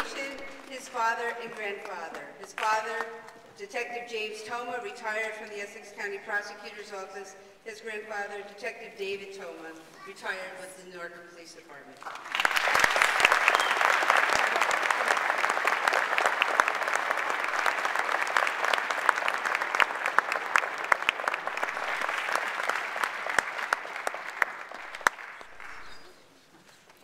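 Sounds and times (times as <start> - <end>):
audience applauding: 0.0 - 0.8, 12.0 - 26.3.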